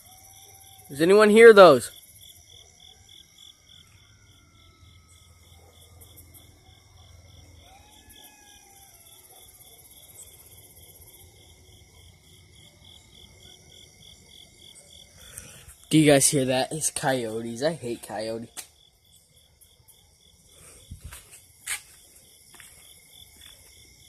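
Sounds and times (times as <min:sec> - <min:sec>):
faint coyote howls: 0:00.0 - 0:15.7
night insects chirping: 0:00.0 - 0:24.0.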